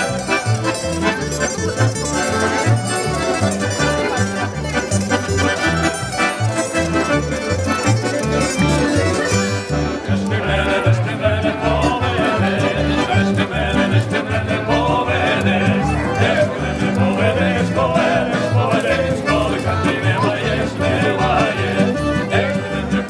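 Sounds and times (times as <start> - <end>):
folk band playing: 0.0 - 23.0
man singing: 10.0 - 23.0.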